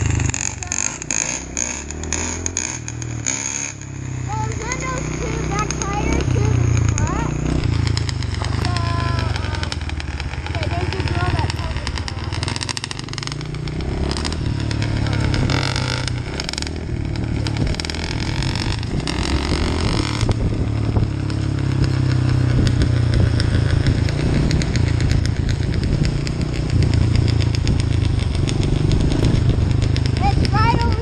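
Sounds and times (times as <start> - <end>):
dirt bike engine revving: 0.0 - 31.0
wind noise on microphone: 11.0 - 31.0.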